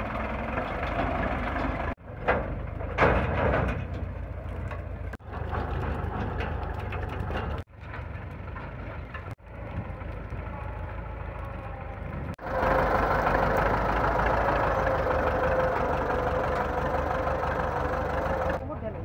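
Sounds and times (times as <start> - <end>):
tractor diesel engine idling: 0.0 - 3.0, 8.4 - 19.0.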